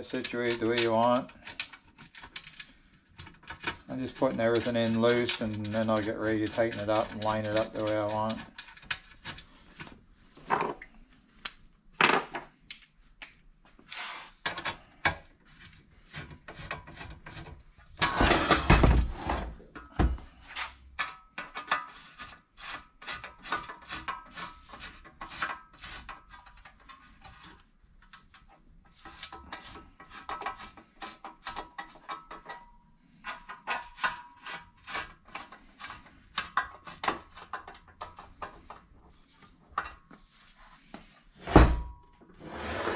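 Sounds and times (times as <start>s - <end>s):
metal parts clinking and knocking: 12.0s - 13.4s.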